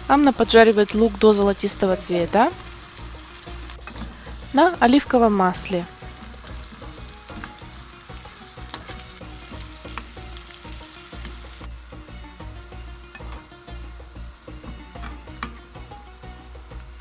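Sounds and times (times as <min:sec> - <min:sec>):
onions sizzling in pan: 0:00.0 - 0:17.0
spoon scraping pan: 0:01.9 - 0:04.5, 0:06.3 - 0:11.6, 0:13.1 - 0:13.5.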